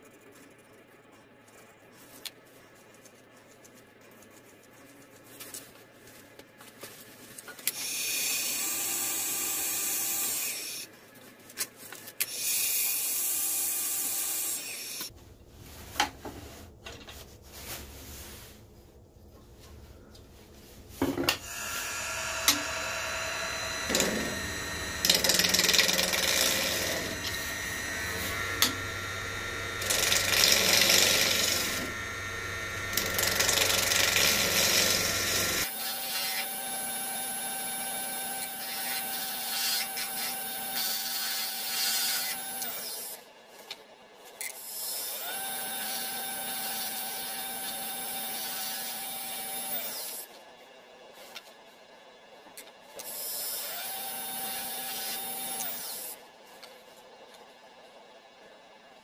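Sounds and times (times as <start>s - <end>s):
wood lathe motor humming: 21.4s - 41.1s
gouge cutting spinning wood: 21.5s - 42.7s.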